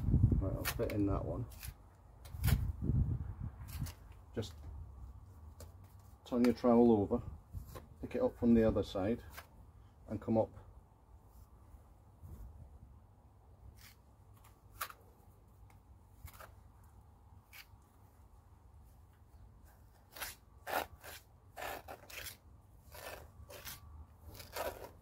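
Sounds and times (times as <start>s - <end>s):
trowel scraping mortar: 20.0s - 25.0s.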